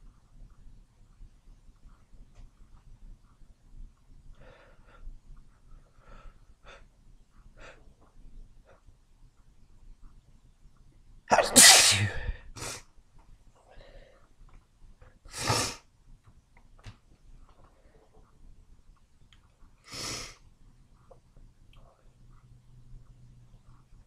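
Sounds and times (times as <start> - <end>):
person sneezing wetly: 11.3 - 12.8.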